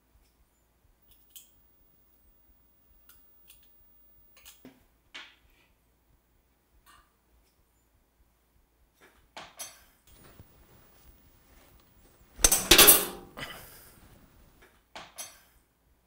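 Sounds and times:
cookware knocks: 0:12.4 - 0:13.6
metal ring: 0:12.4 - 0:13.6
pots and pans clattering: 0:12.4 - 0:13.8.

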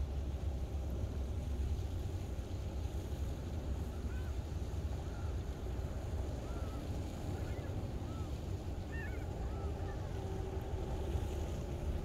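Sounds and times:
distant gulls calling: 0:03.8 - 0:11.9.

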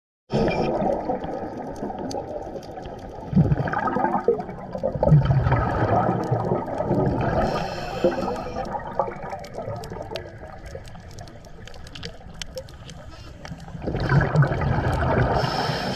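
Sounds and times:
exhaled bubbles gurgling: 0:00.3 - 0:15.9
regulator hiss: 0:07.5 - 0:08.6
small sharp clicks: 0:09.2 - 0:13.7.

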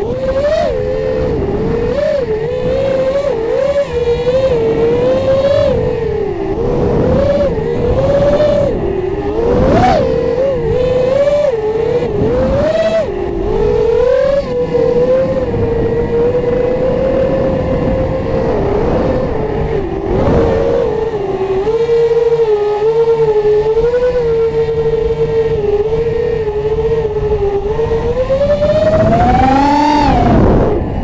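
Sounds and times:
drone motors and propellers whining: 0:00.0 - 0:31.0
rushing air: 0:15.0 - 0:21.3, 0:27.9 - 0:31.0.

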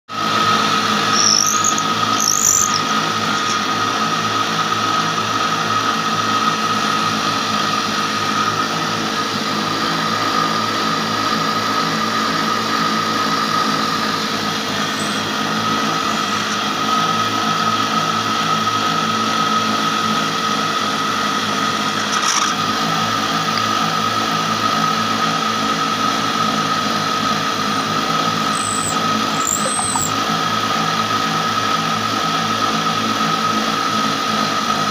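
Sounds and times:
spinning cutter whine: 0:00.1 - 0:34.9
high squeaks: 0:00.9 - 0:03.8, 0:14.8 - 0:15.4, 0:28.5 - 0:30.2.

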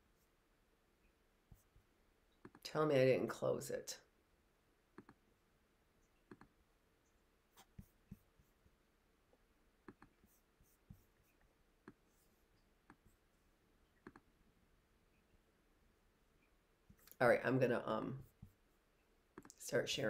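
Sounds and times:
computer mouse clicks: 0:02.4 - 0:02.6, 0:05.0 - 0:05.2, 0:06.3 - 0:06.5, 0:09.9 - 0:10.2, 0:14.0 - 0:14.3.

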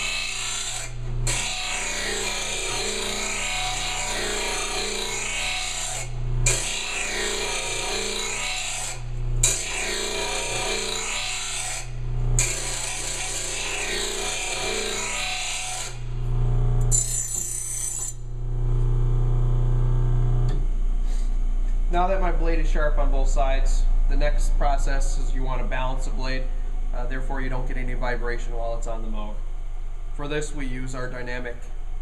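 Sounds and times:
grinding wheel rasping on steel: 0:00.0 - 0:16.1, 0:16.9 - 0:18.2.

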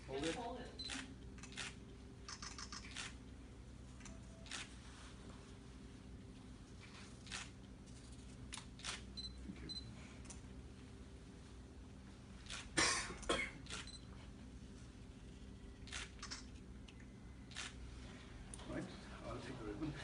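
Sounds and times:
low room hum: 0:00.0 - 0:20.0
camera shutters clicking: 0:00.2 - 0:03.2, 0:04.0 - 0:04.7, 0:07.2 - 0:07.6, 0:08.5 - 0:09.1, 0:12.4 - 0:12.8, 0:13.6 - 0:13.9, 0:15.9 - 0:16.6, 0:17.5 - 0:17.8.

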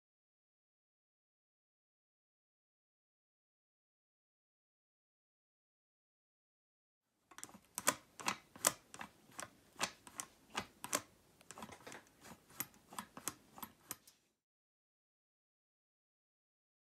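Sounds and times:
sharp metal clicks of a lock: 0:07.3 - 0:14.0.

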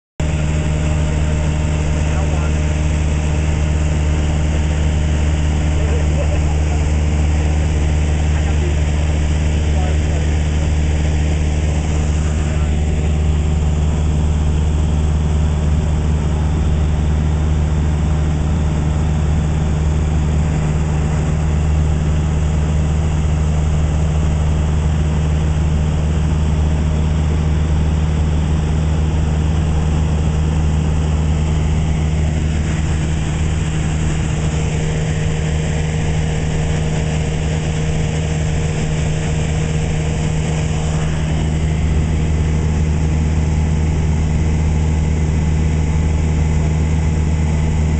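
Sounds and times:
airplane engine droning: 0:00.2 - 0:47.9
rush of airflow: 0:18.8 - 0:47.9.

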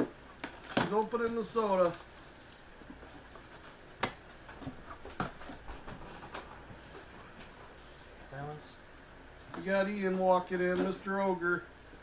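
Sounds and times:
package rustling and handling: 0:00.2 - 0:08.2.

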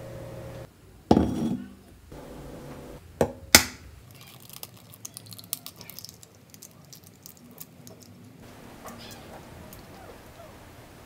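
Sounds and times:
eggshell crackling: 0:03.4 - 0:10.6.

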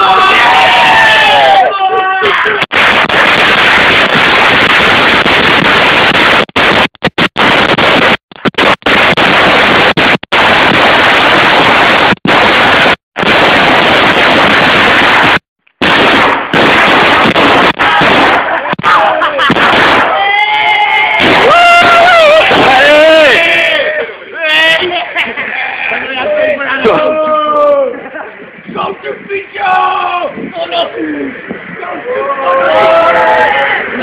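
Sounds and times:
firecrackers exploding: 0:02.5 - 0:23.5.

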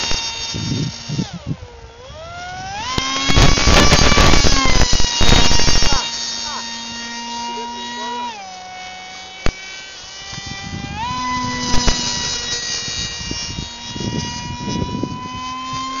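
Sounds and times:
electric motor whine: 0:00.0 - 0:16.0
wind buffeting microphone: 0:00.3 - 0:06.0, 0:10.3 - 0:16.0
sharp clicks: 0:02.8 - 0:06.1, 0:11.6 - 0:12.6.

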